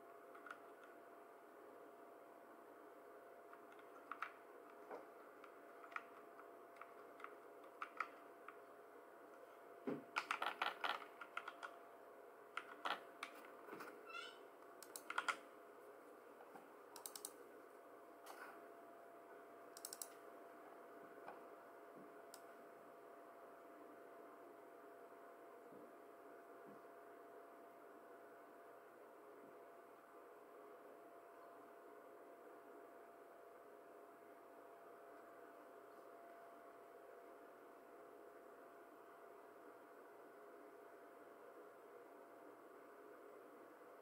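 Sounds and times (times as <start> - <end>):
faint steady hum: 0.0 - 44.0
typing on computer keyboard: 3.6 - 4.4, 5.4 - 8.6, 10.1 - 11.8, 12.5 - 13.4, 14.8 - 15.4, 17.0 - 17.4, 19.8 - 20.2.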